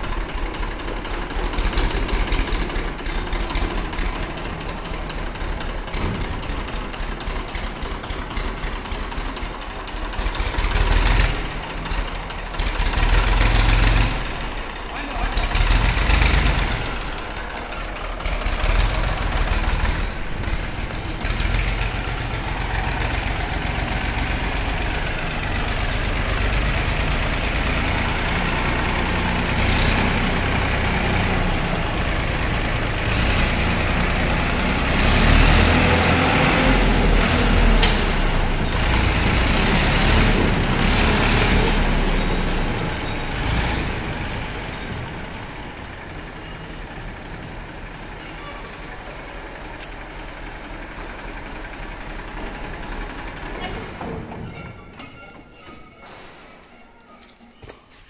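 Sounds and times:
tractor diesel engine rumbling: 0.0s - 57.0s.

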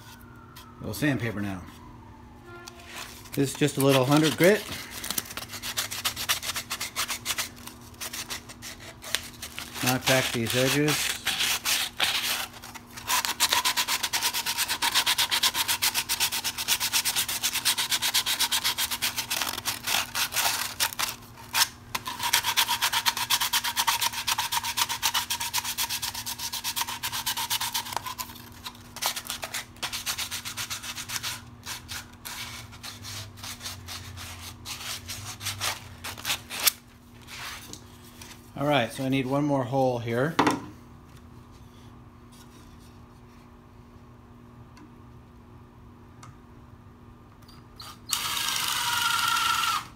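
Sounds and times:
sandpaper rasping on plastic pipe: 2.9s - 4.7s, 5.4s - 36.7s.

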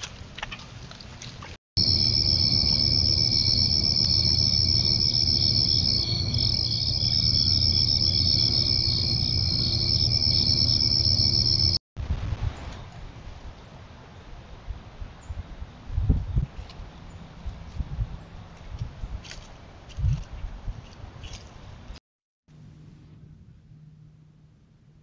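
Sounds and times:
insects trilling: 1.8s - 11.8s
low steady hum: 1.8s - 12.4s.

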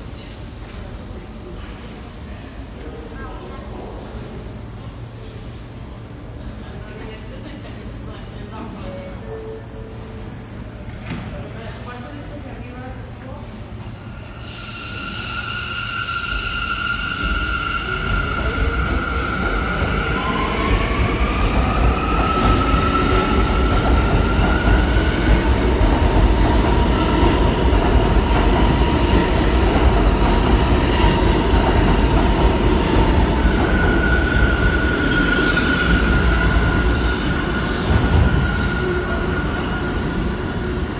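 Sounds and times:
train wheel squeal: 3.7s - 13.1s, 13.8s - 25.7s, 33.4s - 40.9s
train wheels rumbling on rails: 14.4s - 40.9s.

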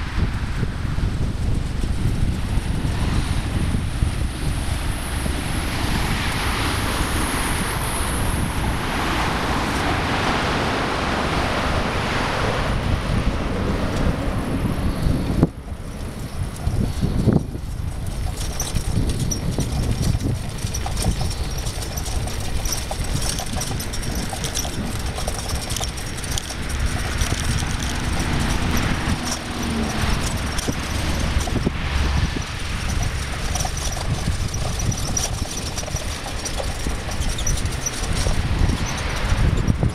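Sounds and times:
bicycle rolling on path: 0.0s - 39.9s
wind rushing on microphone: 0.0s - 39.9s
rapid rattling clicks: 15.9s - 39.9s
truck engine passing: 20.2s - 39.5s.

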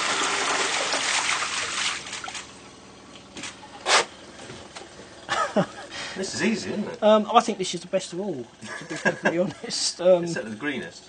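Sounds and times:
water gushing through hole: 0.0s - 2.7s.

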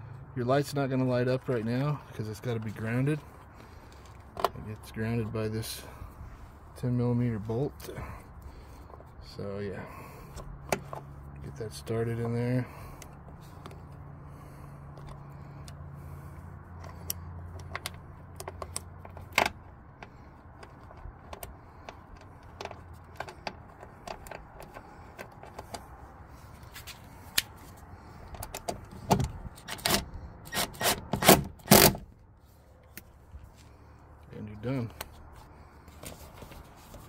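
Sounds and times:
small metallic clicks and rubbing: 16.8s - 30.7s.

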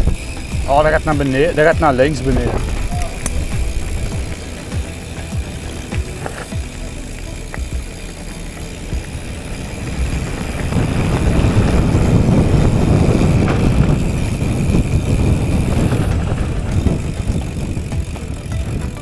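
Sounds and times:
wind buffeting microphone: 0.0s - 8.1s, 8.8s - 19.0s
bike tyres rumbling over trail: 0.0s - 19.0s.

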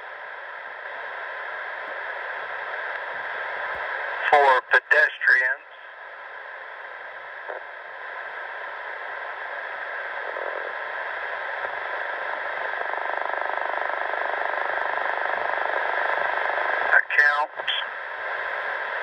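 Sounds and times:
radio static hiss: 0.0s - 19.0s.

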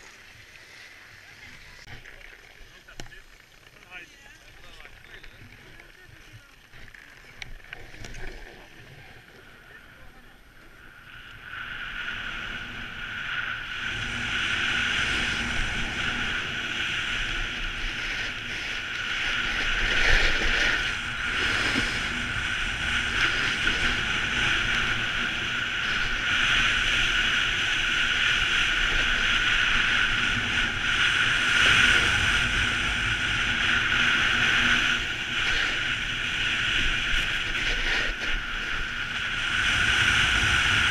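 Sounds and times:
wind on microphone: 4.6s - 40.9s
snowboard scraping on snow: 12.1s - 40.9s.

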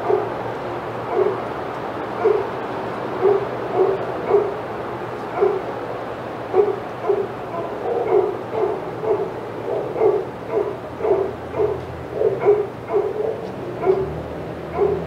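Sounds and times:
dog barking: 0.0s - 0.4s, 1.1s - 1.4s, 2.2s - 2.5s, 3.2s - 4.6s, 5.3s - 5.7s, 6.5s - 15.0s.

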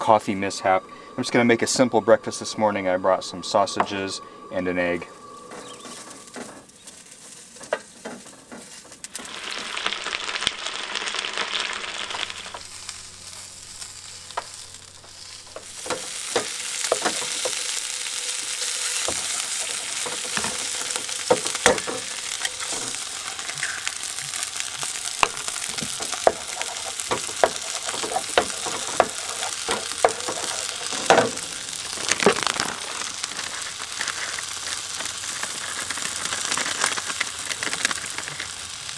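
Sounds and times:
sausages sizzling in a frying pan: 0.0s - 38.9s
wooden spoon scraping a pan: 5.5s - 9.1s, 14.3s - 38.6s.

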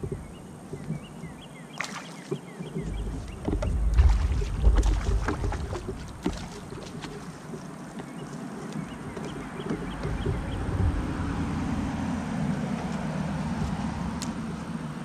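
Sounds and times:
fishing gear clicks and knocks: 0.0s - 1.3s, 2.2s - 11.4s
low rumble: 2.8s - 6.6s, 8.9s - 15.0s.

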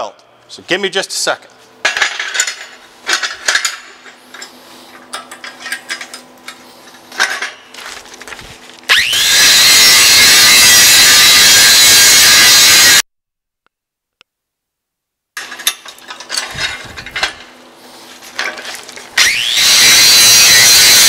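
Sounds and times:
angle grinder grinding steel: 8.9s - 13.0s, 19.2s - 21.0s.

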